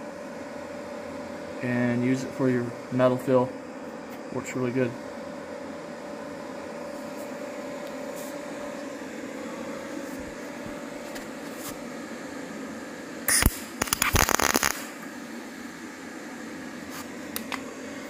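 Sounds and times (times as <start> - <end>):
steady background hum: 0.0 - 18.0
welding crackle: 13.3 - 15.0.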